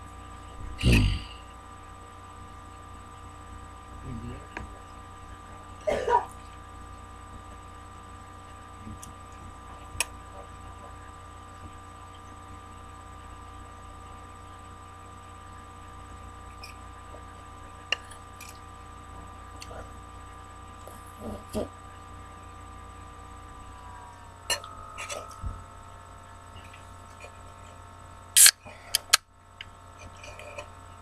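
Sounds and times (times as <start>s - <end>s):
electrical hum: 0.0s - 31.0s
thin whining tones: 20.5s - 28.5s.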